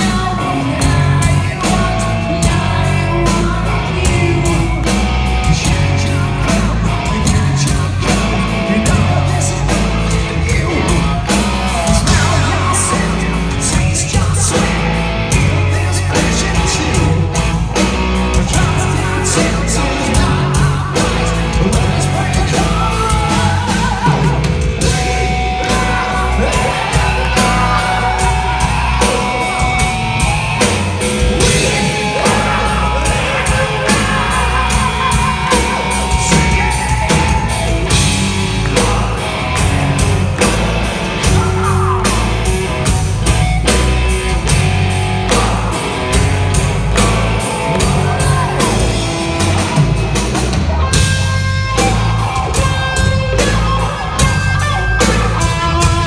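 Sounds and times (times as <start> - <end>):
man singing loudly: 0.0 - 17.3, 18.3 - 30.6, 31.2 - 39.7, 41.2 - 42.3
live hard rock band: 0.0 - 56.0.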